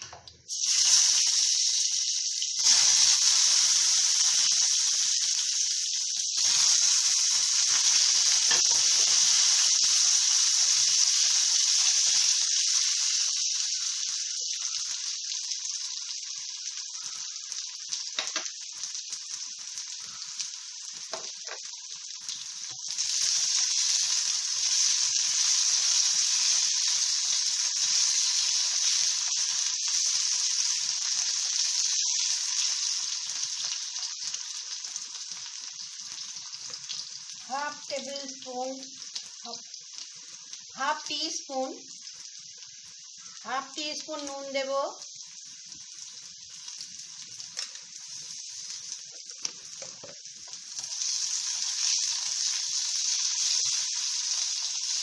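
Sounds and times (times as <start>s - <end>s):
potatoes sizzling in oil: 0.0s - 55.0s.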